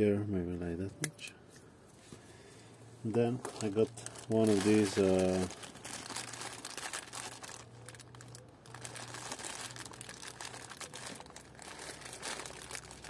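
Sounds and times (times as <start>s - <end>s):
plastic packaging crinkling: 3.3s - 13.0s.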